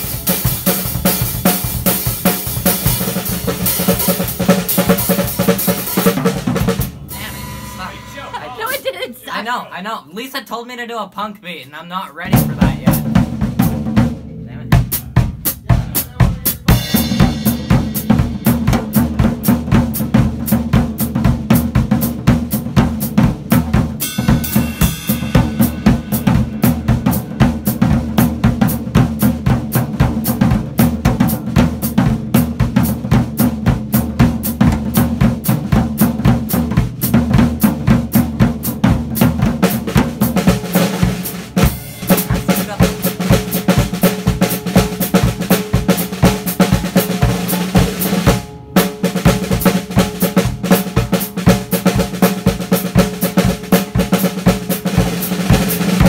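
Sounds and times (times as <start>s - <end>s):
drum kit beat: 0.0s - 56.0s
cymbal crash: 6.8s - 8.8s, 24.0s - 27.7s.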